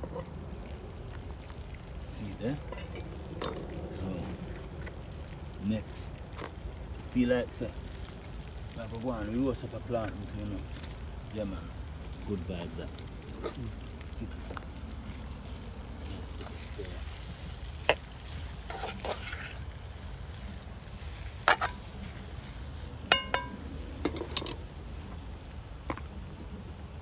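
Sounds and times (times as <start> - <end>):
utensil scraping: 17.9 - 19.7
utensils knocking and clinking: 23.1 - 24.6.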